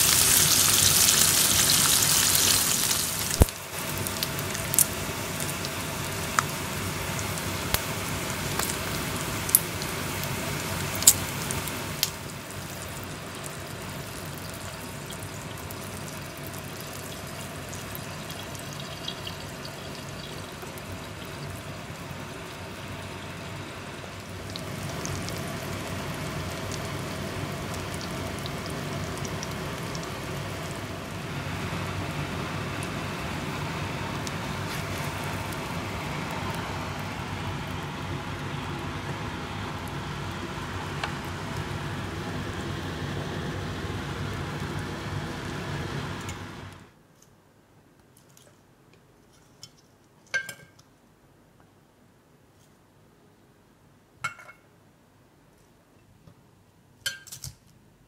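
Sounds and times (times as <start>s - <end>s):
hot fat spitting and popping: 0.0s - 5.7s
bacon sizzling in a pan: 0.0s - 46.3s
eggs sizzling in a pan: 0.0s - 46.8s.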